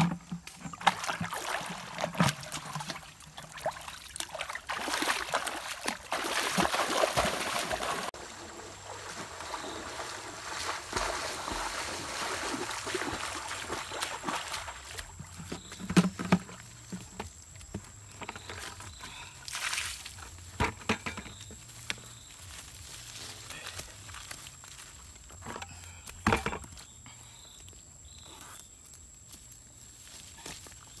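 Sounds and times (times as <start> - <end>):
water splashing from wading: 0.8 - 15.1
footsteps on leaves: 21.7 - 25.4.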